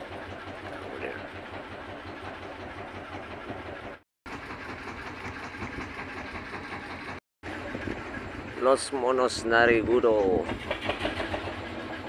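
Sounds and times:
boat engine chugging: 0.0 - 12.0.

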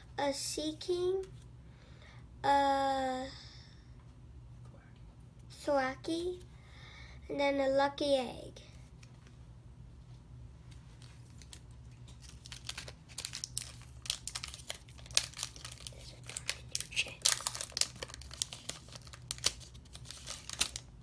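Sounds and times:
foil wrapper crinkling and tearing: 11.0 - 21.0.

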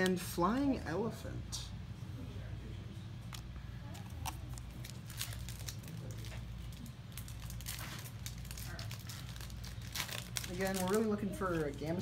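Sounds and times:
foil wrapper crinkling: 3.9 - 12.0.

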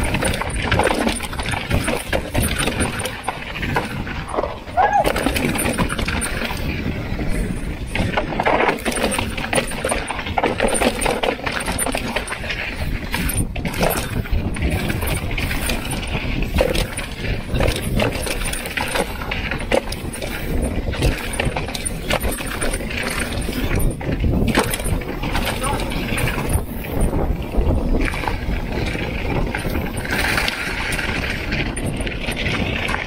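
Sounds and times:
bike rattling and knocking: 0.0 - 33.0
tyres on dirt and gravel: 0.0 - 33.0
wind on microphone: 0.0 - 33.0.

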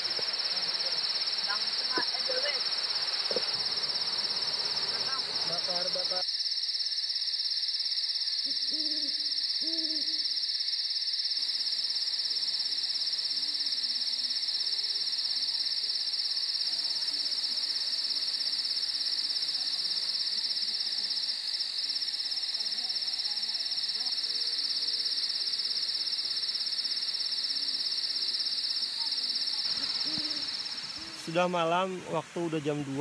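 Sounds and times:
night insects trilling: 0.0 - 33.0
owl hooting: 8.4 - 10.4, 29.8 - 30.8.

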